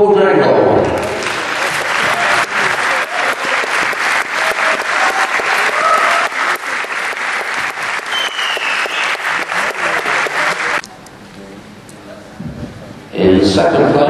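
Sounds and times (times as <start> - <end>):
audience applauding: 0.8 - 10.9
high whistle-like tone: 8.1 - 9.2.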